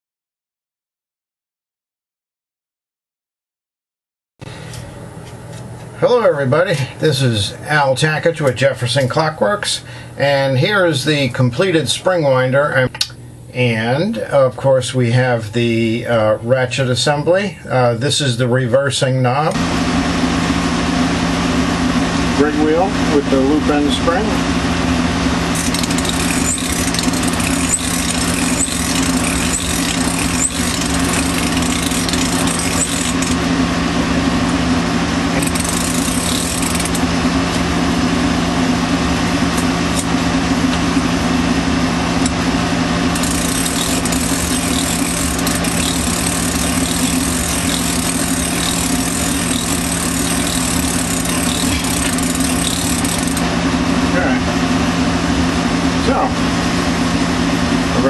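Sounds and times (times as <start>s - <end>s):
cordless drill motor hum: 25.5s - 33.6s, 35.3s - 37.1s, 43.0s - 53.5s.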